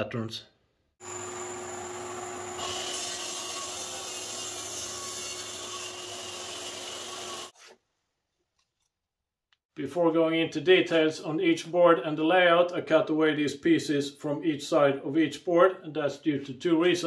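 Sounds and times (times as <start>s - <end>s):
mitre saw motor whine: 1.0s - 4.7s
saw blade cutting wood: 1.0s - 7.8s.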